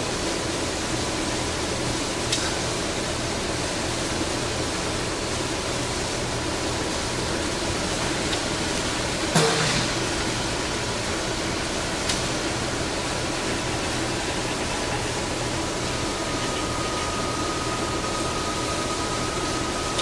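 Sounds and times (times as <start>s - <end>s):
lathe whirring hum: 0.0s - 20.0s
sharp knock with ring: 9.4s - 10.0s.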